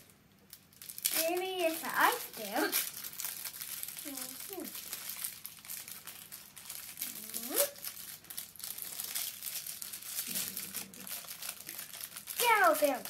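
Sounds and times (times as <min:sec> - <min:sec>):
plastic wrapper crinkling: 0:00.0 - 0:13.0
child's voice: 0:01.1 - 0:02.9, 0:04.0 - 0:04.8, 0:07.1 - 0:07.8, 0:12.4 - 0:13.0.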